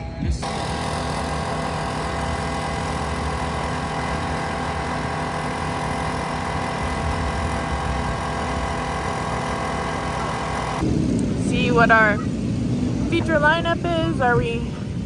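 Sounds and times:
race car engines running: 0:00.4 - 0:10.8.

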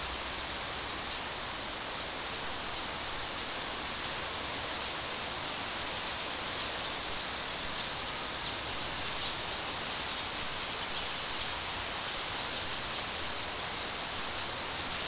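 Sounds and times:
wind with rustling: 0:00.0 - 0:15.0.

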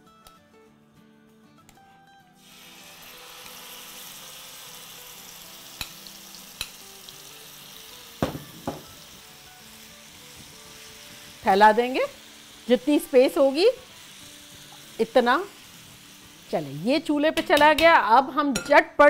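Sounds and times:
chicken sizzling in hot oil: 0:02.4 - 0:17.8.

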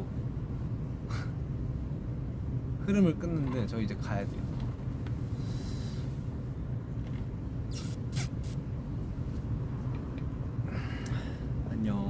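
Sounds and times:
low outdoor rumble: 0:00.0 - 0:12.0
short hissing rustles: 0:07.7 - 0:08.6.

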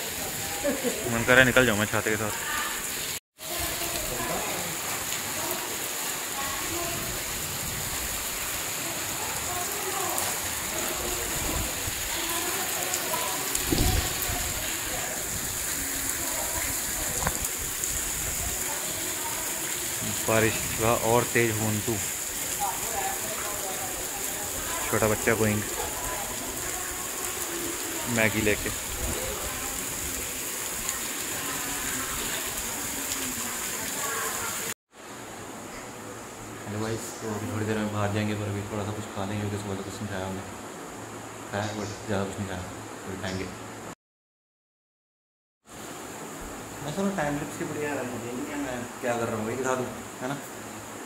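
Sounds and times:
steady rain: 0:00.0 - 0:44.0, 0:45.7 - 0:51.0
faint voices: 0:08.3 - 0:34.7
low thump: 0:13.7 - 0:14.2.

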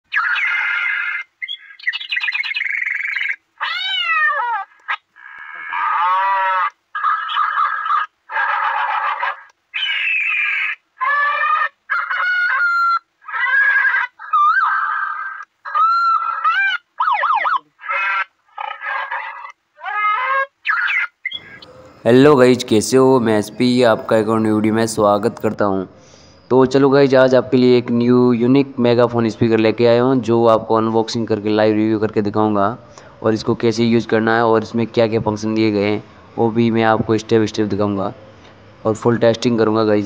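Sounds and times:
megaphone warbles and animal calls: 0:00.2 - 0:14.7, 0:15.7 - 0:25.6.

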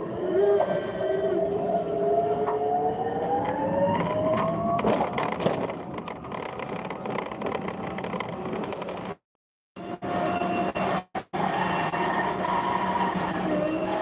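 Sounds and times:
rattling and clicks from a load: 0:04.0 - 0:09.2
electric motor whining: 0:11.4 - 0:14.0.

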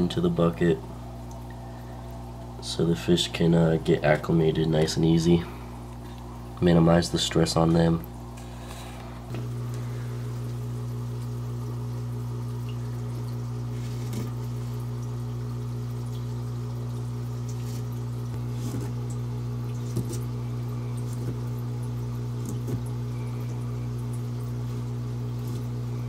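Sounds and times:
steady low hum: 0:00.0 - 0:26.0
soft water splashes: 0:00.8 - 0:02.6, 0:07.6 - 0:26.0.

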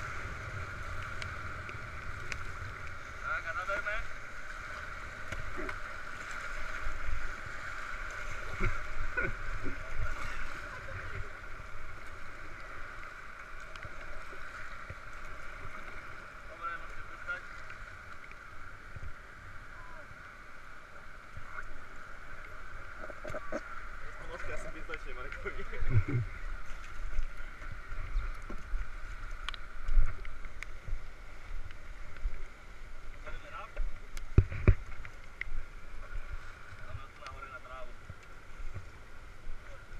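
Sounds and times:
paddle strokes splashing: 0:00.0 - 0:19.4.

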